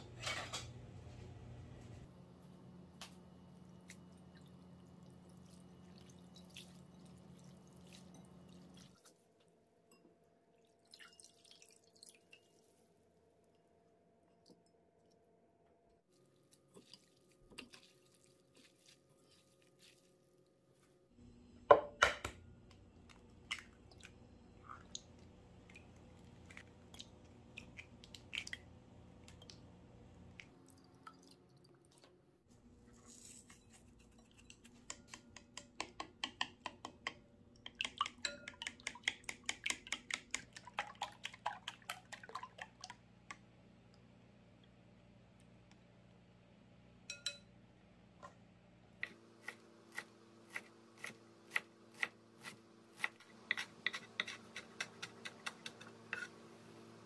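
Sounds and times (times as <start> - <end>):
chopsticks beating eggs in bowl: 33.6 - 42.8, 53.0 - 56.5.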